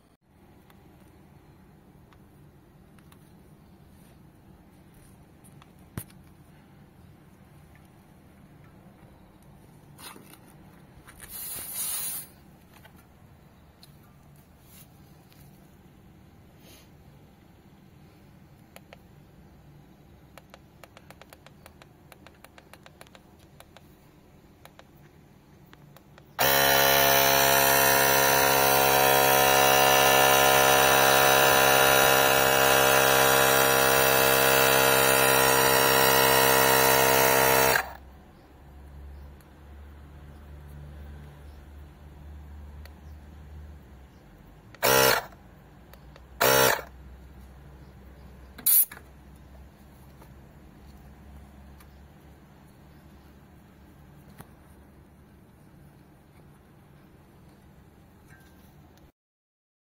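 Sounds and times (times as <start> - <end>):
handling clicks and rustles: 7.3 - 11.6
air hissing from tyre valve: 11.2 - 12.4
portable air compressor buzzing: 11.2 - 12.4, 26.2 - 38.0, 44.8 - 45.4, 46.3 - 47.0, 48.6 - 49.0.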